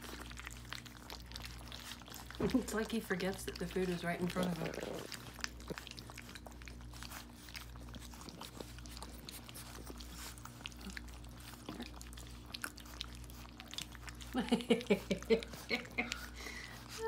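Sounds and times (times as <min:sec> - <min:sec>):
puppies lapping food: 0:00.0 - 0:17.0
steady low hum: 0:00.0 - 0:17.0.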